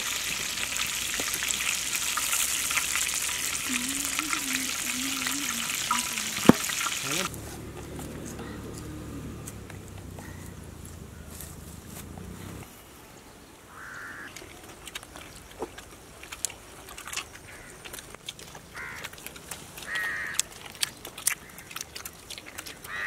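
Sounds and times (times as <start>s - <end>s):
people chewing fried chicken: 0.0s - 10.4s, 14.3s - 23.0s
crow cawing: 10.2s - 10.5s, 13.7s - 14.3s, 18.8s - 19.0s, 19.9s - 20.4s.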